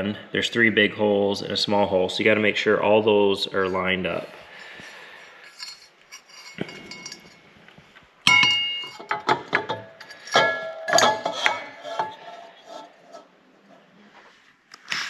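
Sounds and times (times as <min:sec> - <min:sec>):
metal housing knocking and clinking: 0:06.5 - 0:07.4, 0:08.3 - 0:12.2.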